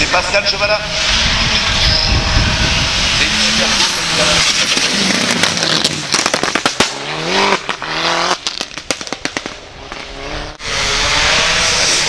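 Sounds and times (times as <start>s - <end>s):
race car engine revving: 0.0s - 12.0s
exhaust pops and crackles: 3.2s - 10.3s.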